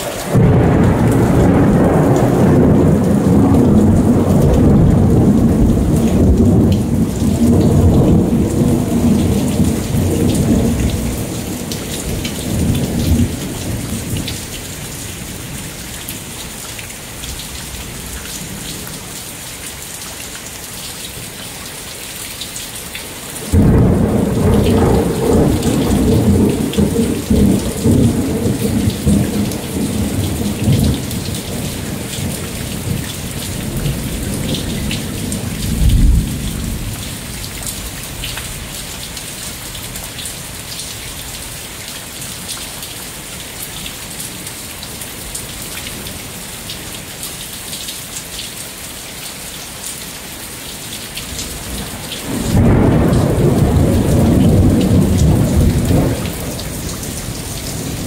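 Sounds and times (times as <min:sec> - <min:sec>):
thunder rumbling: 0:00.0 - 0:14.7, 0:23.4 - 0:37.9, 0:51.7 - 0:58.0
heavy rain pouring: 0:00.0 - 0:58.0
loud thunderclap: 0:00.3 - 0:14.4, 0:23.4 - 0:37.0, 0:51.7 - 0:58.0.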